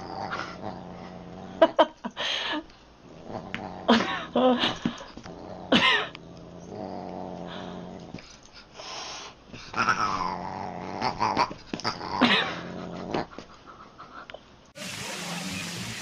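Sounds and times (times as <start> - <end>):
cat growling: 3.1 - 4.5, 5.2 - 8.2, 9.7 - 13.4.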